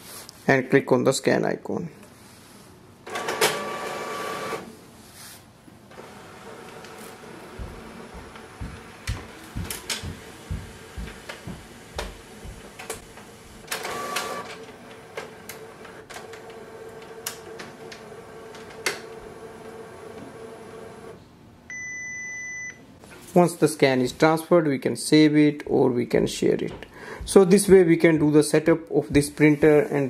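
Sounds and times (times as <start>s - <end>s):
scanner whirr: 5.9s - 21.8s.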